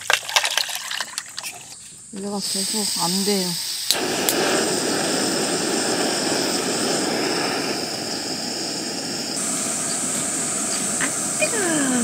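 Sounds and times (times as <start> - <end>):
cicadas droning: 0.0 - 12.0
gas stove burner roaring: 2.4 - 12.0
water boiling: 2.4 - 12.0.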